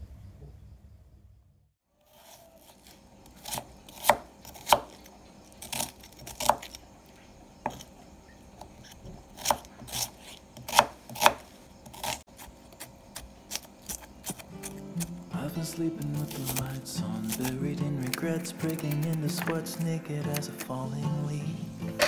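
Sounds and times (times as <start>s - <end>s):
knife chopping on cutting board: 3.4s - 5.0s, 7.7s - 7.9s, 8.9s - 15.1s, 17.2s - 18.2s.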